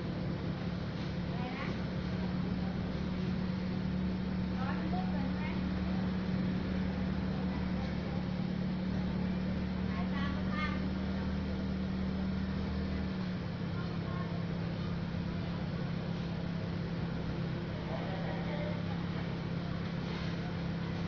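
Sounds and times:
low mechanical hum: 0.0 - 21.0
faint voices: 1.0 - 21.0.

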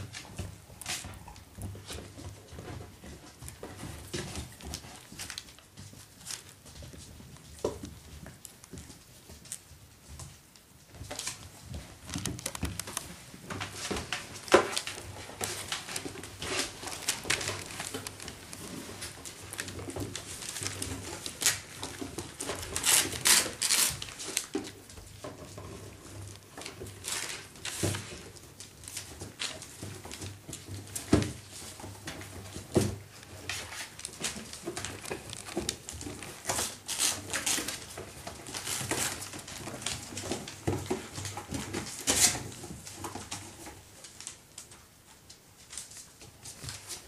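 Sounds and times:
puppies scrabbling on newspaper: 0.0 - 47.0
paper rustling: 11.0 - 44.8.

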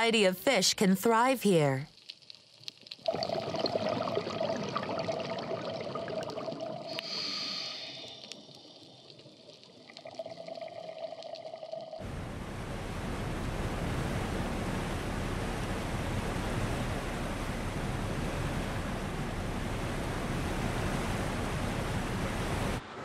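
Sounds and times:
sea: 1.2 - 23.0
wind: 12.0 - 23.0.

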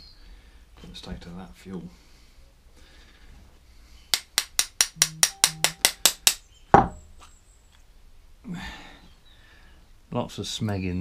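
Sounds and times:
sharp metallic taps: 4.1 - 6.9.

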